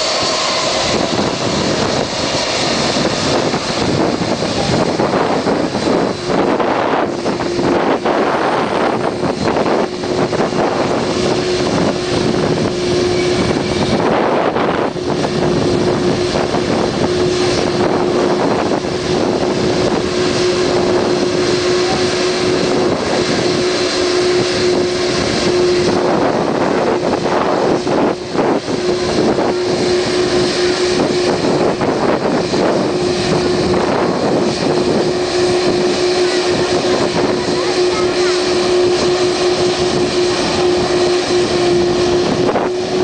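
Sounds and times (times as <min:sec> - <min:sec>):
jet engines droning: 0:00.0 - 0:43.0
wind buffeting microphone: 0:00.0 - 0:43.0.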